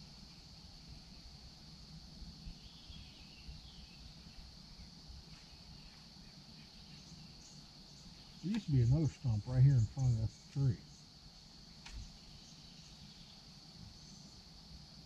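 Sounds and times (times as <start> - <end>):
high-pitched insect drone: 0.0 - 15.0
faint chirps: 2.4 - 14.5.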